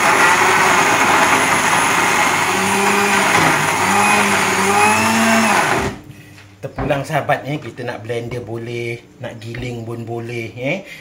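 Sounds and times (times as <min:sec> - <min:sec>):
electric blender running: 0:00.0 - 0:06.1.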